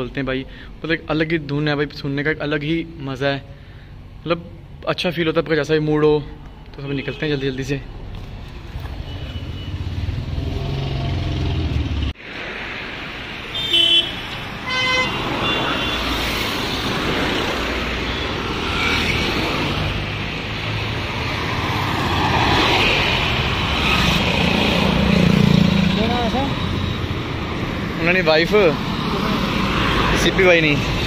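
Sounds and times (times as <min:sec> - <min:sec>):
cars and scooters passing: 0:07.8 - 0:31.0
vehicle horn toots: 0:13.5 - 0:16.2.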